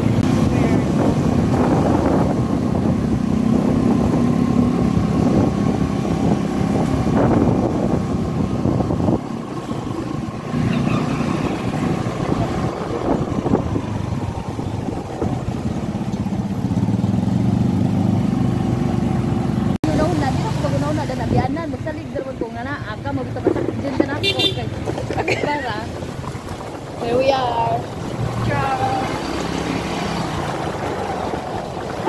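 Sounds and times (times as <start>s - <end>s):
motorcycle engine running: 0.0s - 32.0s
wind rushing over microphone: 0.0s - 32.0s.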